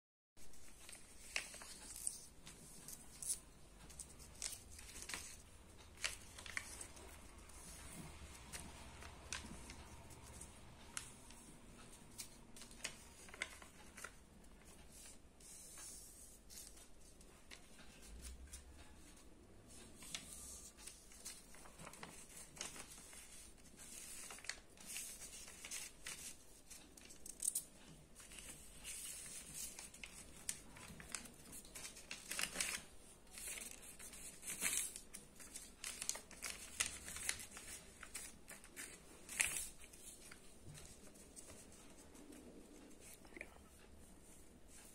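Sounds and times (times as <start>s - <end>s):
paper rustling and crinkling: 0.4s - 44.9s.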